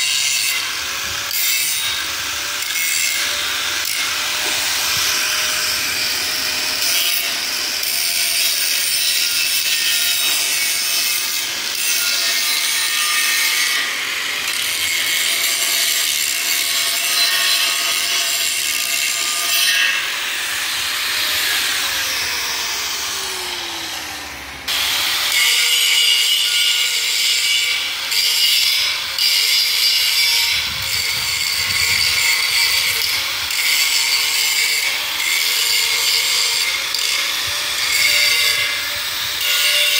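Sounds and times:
angle grinder grinding steel: 0.0 - 39.9
grinder motor whine: 20.0 - 25.4.

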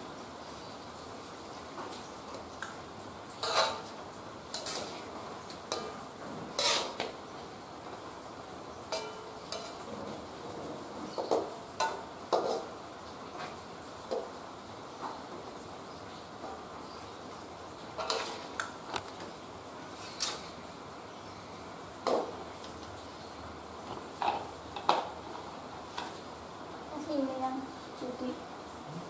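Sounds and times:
faint steady hiss: 0.0 - 29.0
metal spatula scraping a wok: 3.4 - 7.2, 8.9 - 10.3, 11.1 - 12.8, 18.0 - 18.5, 20.0 - 20.5.

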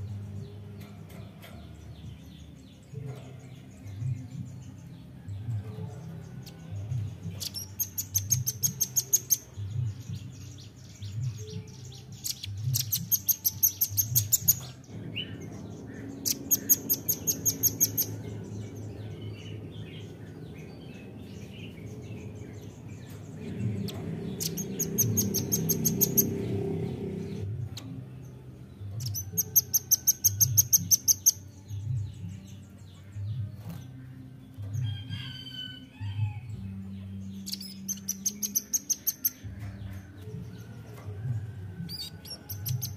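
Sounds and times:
low background rumble: 14.0 - 29.6.

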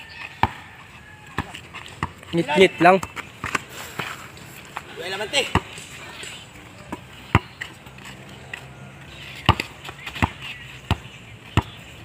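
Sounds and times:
basketball dribbled on dirt: 0.0 - 6.0, 6.7 - 12.0.

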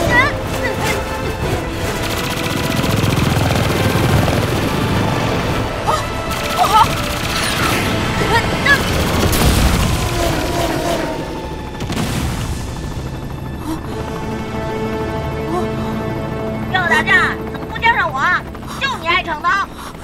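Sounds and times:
driving action music: 0.0 - 20.0
rapid gunfire: 0.4 - 4.5, 6.2 - 11.2
explosion booms: 9.1 - 10.4, 11.8 - 12.8.

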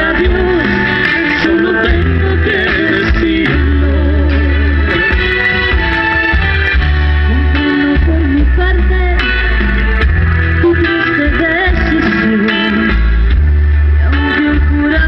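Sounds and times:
person singing: 0.0 - 5.2, 7.2 - 9.9, 10.6 - 13.1, 13.9 - 15.0
bass line: 0.0 - 15.0
guitar: 0.0 - 15.0.

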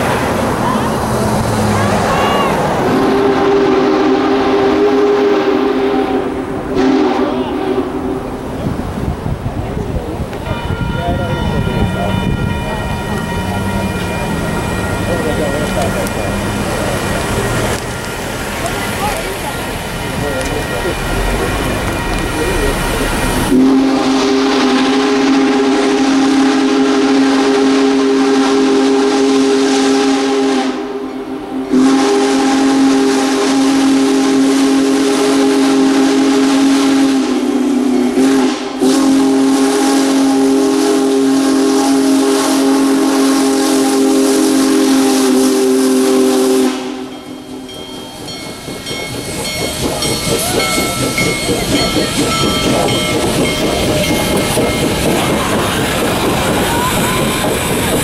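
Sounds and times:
passing train: 0.0 - 58.0
steam whistle blasts: 2.1 - 8.4, 21.2 - 48.4.

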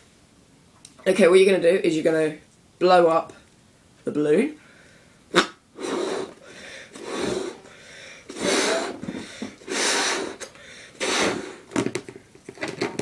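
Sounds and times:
breath puffs into balloon: 5.3 - 11.8.

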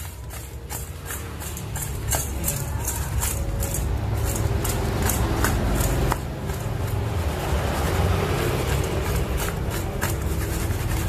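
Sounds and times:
tofu tossed in steel bowl: 0.0 - 7.3.

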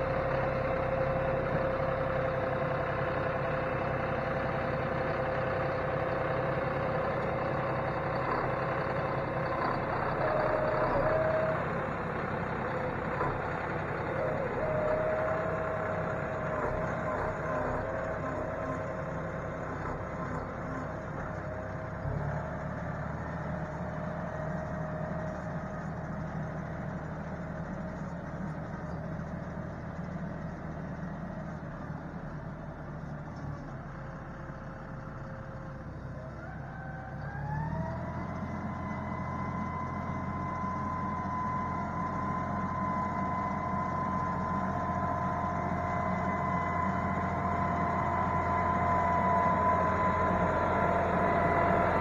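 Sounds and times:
tractor diesel engine running: 0.0 - 52.0
whine: 37.8 - 52.0.

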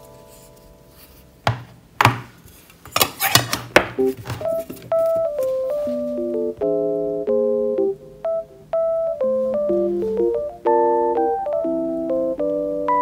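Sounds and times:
soft piano music: 0.0 - 1.5, 3.9 - 13.0
tin container knocking on desk: 1.5 - 2.3.

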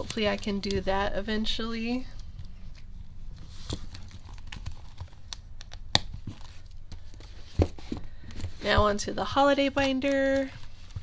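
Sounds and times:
plastic pouches rustling and crinkling: 0.0 - 1.1, 2.0 - 5.5.

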